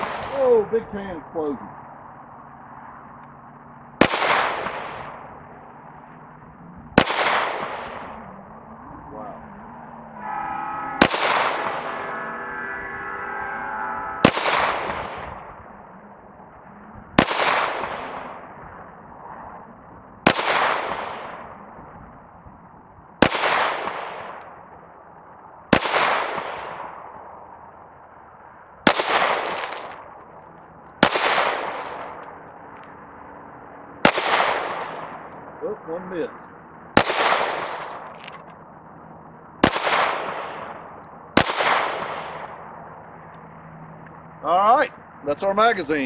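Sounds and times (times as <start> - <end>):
pistol shots echoing: 4.0 - 5.3, 7.0 - 8.2, 11.0 - 11.9, 14.2 - 15.4, 17.2 - 18.4, 20.3 - 21.4, 23.2 - 24.4, 25.7 - 27.0, 28.9 - 30.0, 31.0 - 32.2, 34.0 - 35.3, 37.0 - 38.1, 39.6 - 42.6
ringing tone: 10.2 - 14.3.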